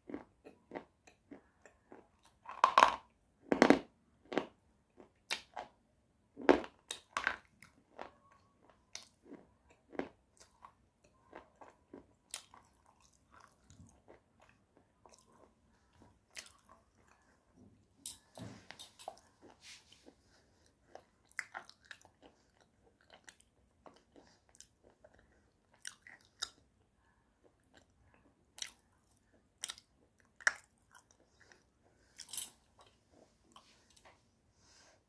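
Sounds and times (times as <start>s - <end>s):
chewing crunches: 6.4s - 17.3s, 20.9s - 26.6s.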